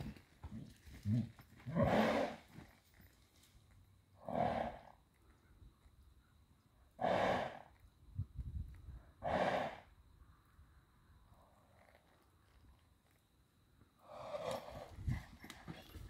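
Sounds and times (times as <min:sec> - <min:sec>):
horse snorting: 0:00.0 - 0:02.5, 0:04.2 - 0:04.9, 0:07.0 - 0:07.7, 0:09.2 - 0:09.9, 0:14.1 - 0:16.0.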